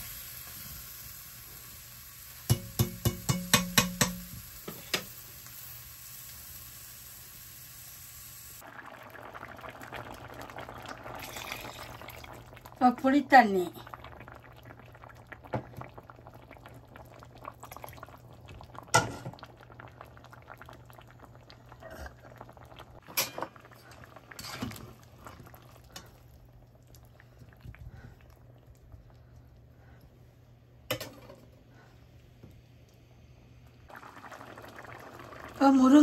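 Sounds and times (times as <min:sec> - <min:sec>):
utensil knocking against pot: 0:02.5 - 0:04.3
curry bubbling in a pot: 0:08.6 - 0:30.4, 0:33.9 - 0:36.0.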